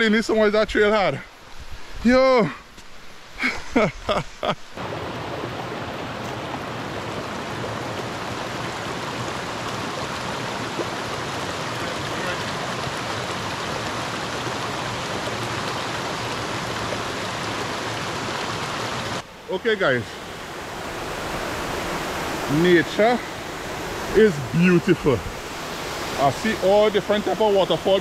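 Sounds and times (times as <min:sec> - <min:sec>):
stream rushing over stones: 0:00.1 - 0:28.0.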